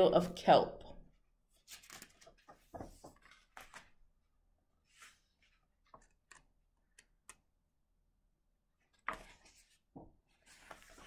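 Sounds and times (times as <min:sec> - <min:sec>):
paper rustling: 0:01.5 - 0:04.0, 0:04.8 - 0:06.4, 0:08.8 - 0:11.0.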